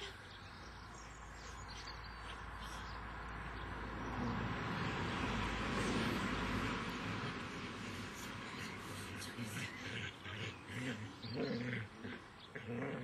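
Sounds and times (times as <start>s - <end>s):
passing vehicle rushing: 2.5s - 10.2s.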